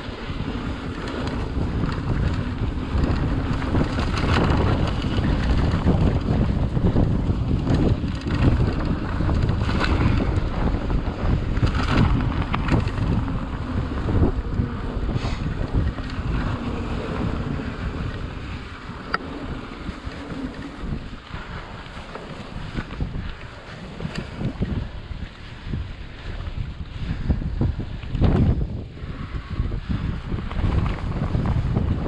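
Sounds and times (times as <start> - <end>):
tyres rolling on dirt: 0.0 - 25.1
wind buffeting microphone: 0.0 - 32.0.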